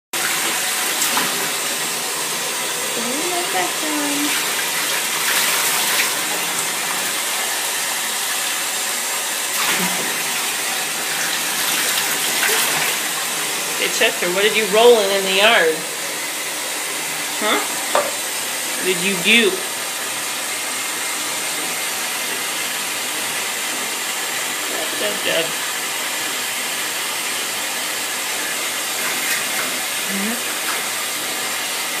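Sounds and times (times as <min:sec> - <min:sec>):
water running into bathtub: 0:00.2 - 0:32.0.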